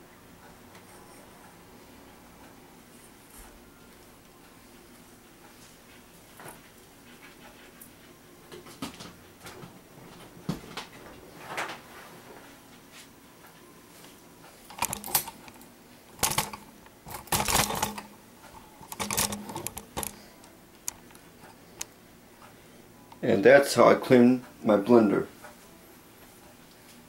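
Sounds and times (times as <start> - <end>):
clatter and rustling: 16.2 - 18.1.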